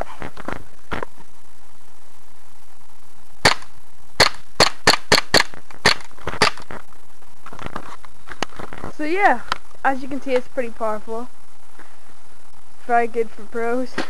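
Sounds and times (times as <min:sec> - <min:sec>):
airsoft pistol shots: 0:03.4 - 0:06.6.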